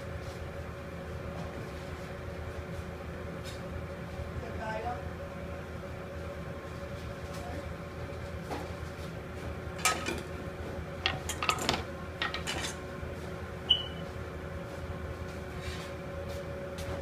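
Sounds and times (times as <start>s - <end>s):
steady background hum: 0.0s - 17.0s
dishes clinking and knocking: 9.8s - 10.3s, 11.0s - 12.8s.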